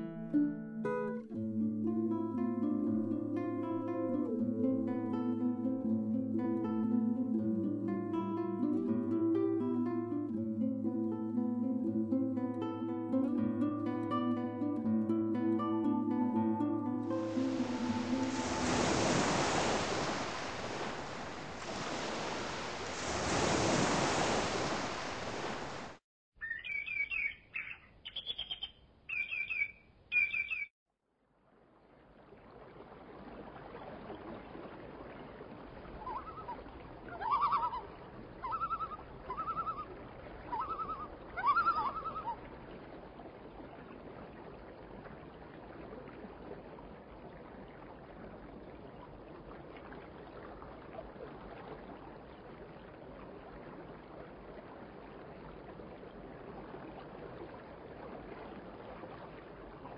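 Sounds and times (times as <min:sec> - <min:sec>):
loud rushing water: 0:17.0 - 0:26.0
high bird chirps: 0:26.4 - 0:30.7.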